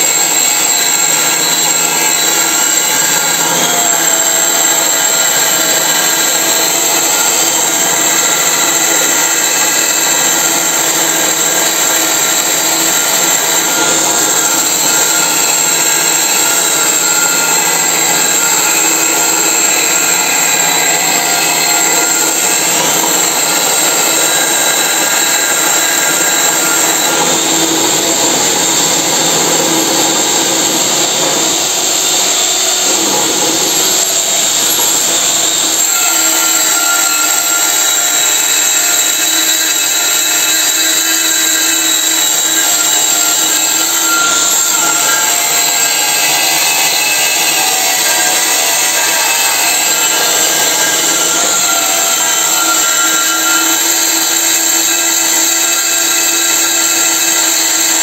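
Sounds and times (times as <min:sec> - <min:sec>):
angle grinder grinding steel: 0:00.0 - 0:58.0
electric motor running: 0:00.0 - 0:58.0.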